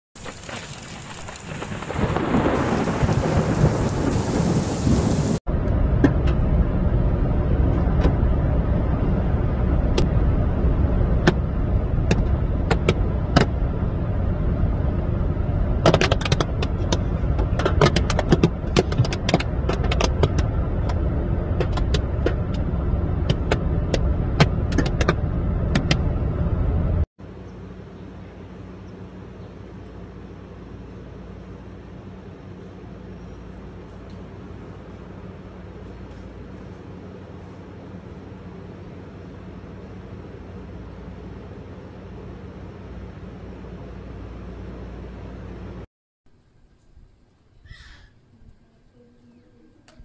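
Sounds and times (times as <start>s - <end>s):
thunder and rain: 0.2s - 5.4s
road and wind rumble in car: 0.2s - 45.9s
locusts ticking on windscreen: 15.8s - 26.0s.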